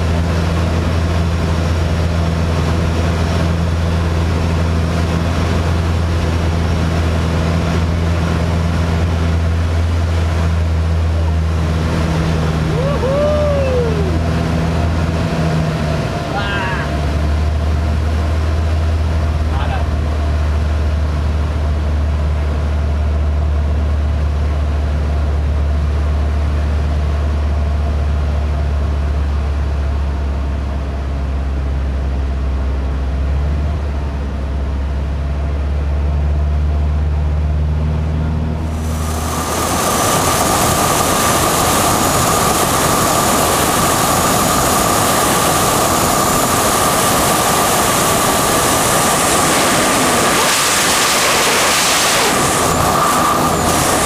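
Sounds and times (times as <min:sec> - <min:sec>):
propeller plane engine drone: 0:00.0 - 0:54.0
wind rushing over camera: 0:38.7 - 0:54.0.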